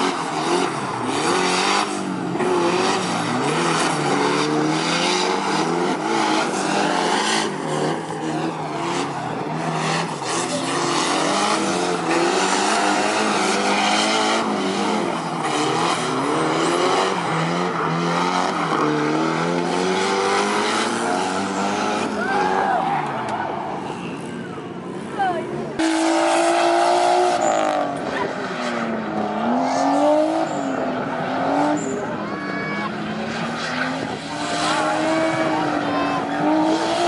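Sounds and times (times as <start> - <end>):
car engines revving: 0.0 - 37.0.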